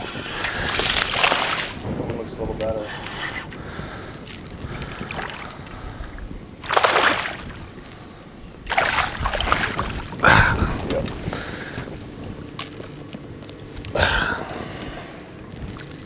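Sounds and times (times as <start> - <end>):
wind and river rumble: 0.0 - 16.0
fish splashing at surface: 0.3 - 1.8, 6.6 - 7.6, 8.7 - 10.1.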